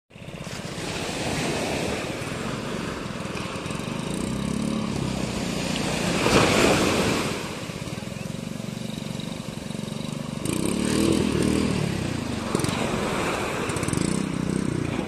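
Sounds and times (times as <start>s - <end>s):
outboard motor running: 0.1s - 15.0s
surf breaking: 0.4s - 7.9s, 10.6s - 15.0s
wave crashing: 4.8s - 7.9s, 10.9s - 14.0s.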